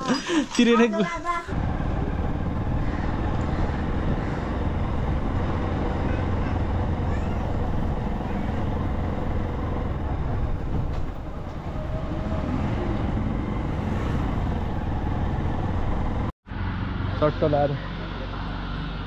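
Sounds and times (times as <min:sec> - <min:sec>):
road noise: 0:00.0 - 0:19.0
vehicle engine rumble: 0:01.2 - 0:19.0
wind buffeting microphone: 0:01.5 - 0:16.3.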